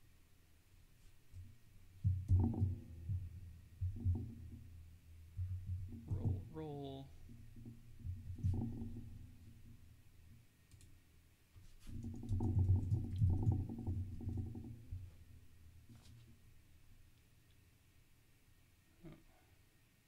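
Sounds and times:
low muffled sound: 0:02.6 - 0:07.3.

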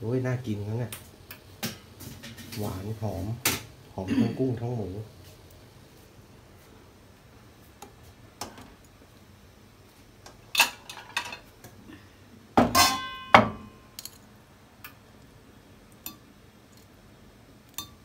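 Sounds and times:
dishes and utensils clinking: 0:10.5 - 0:11.5, 0:12.6 - 0:15.0, 0:17.7 - 0:18.0.

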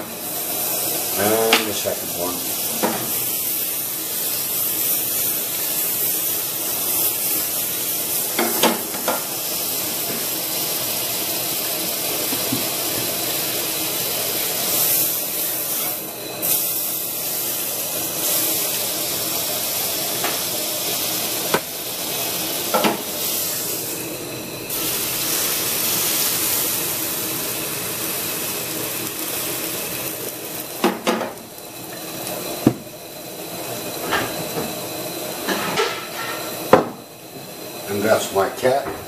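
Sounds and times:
batter sizzling in frying pan: 0:00.0 - 0:38.8.

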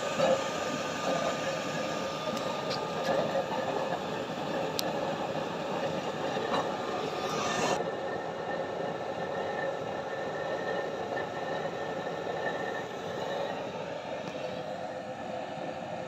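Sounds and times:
burner flame rushing: 0:00.6 - 0:07.8.

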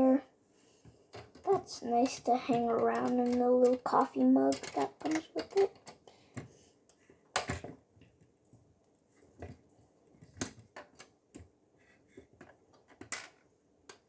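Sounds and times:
plastic bricks clicking: 0:04.5 - 0:06.0.

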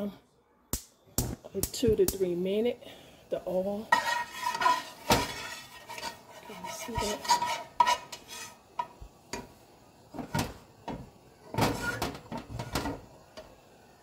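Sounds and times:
utensils and cookware clinking: 0:03.8 - 0:13.6.

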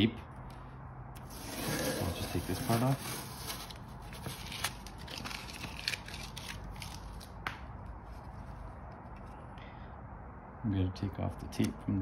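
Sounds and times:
tape peeling and crinkling: 0:01.2 - 0:09.5.

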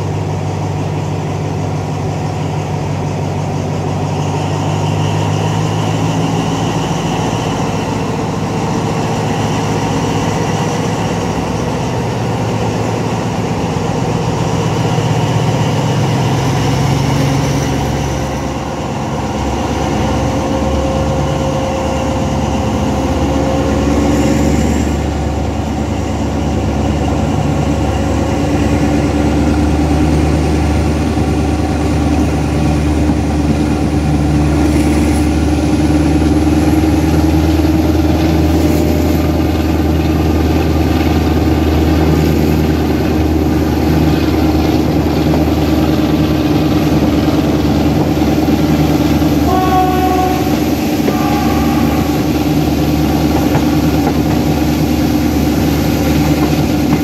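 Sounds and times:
locomotive engine drone: 0:00.0 - 0:57.0
high whine: 0:41.8 - 0:57.0.

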